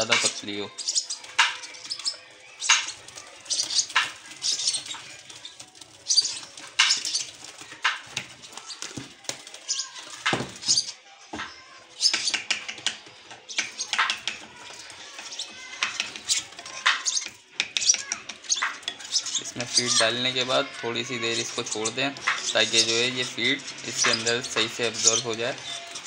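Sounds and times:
lovebird chicks calling: 0.0s - 11.0s, 11.9s - 26.0s.

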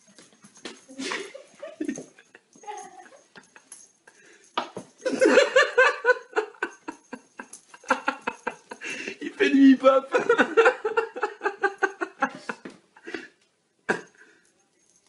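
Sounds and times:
person laughing: 0.9s - 3.7s.

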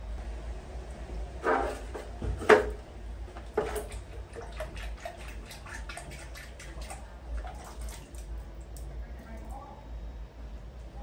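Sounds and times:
water splashing in a bathtub: 1.4s - 9.6s
water dripping: 3.4s - 9.6s.

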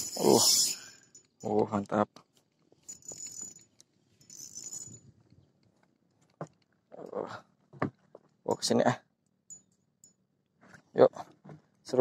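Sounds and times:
fishing reel whirring: 0.0s - 0.9s, 4.3s - 5.0s.

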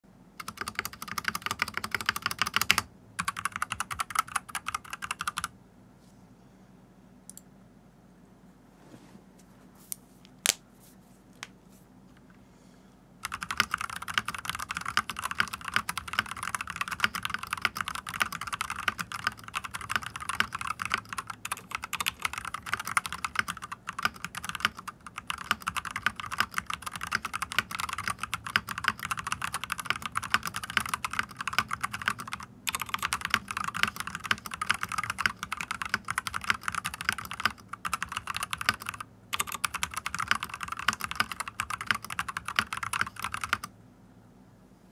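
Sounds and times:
fast typing on mechanical keyboard: 0.4s - 5.5s, 13.2s - 43.7s.

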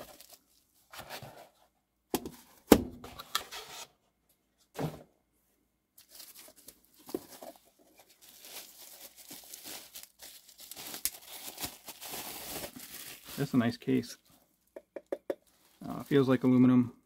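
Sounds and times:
bubble wrap crinkling: 0.0s - 0.7s, 6.0s - 13.8s.

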